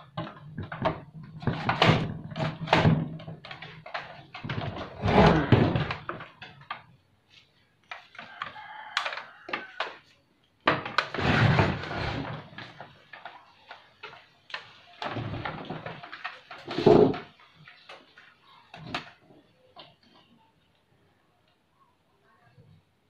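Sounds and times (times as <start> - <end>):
plastic television cabinet rattling: 0.0 - 6.3
scraping thumps: 10.7 - 13.2.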